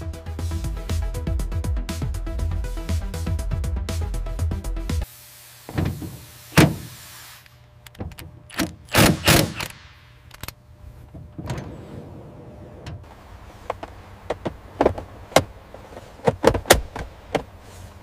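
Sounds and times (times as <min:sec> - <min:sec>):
low steady hum: 0:05.0 - 0:18.0
seat frame clunking onto metal rails: 0:10.4 - 0:17.6.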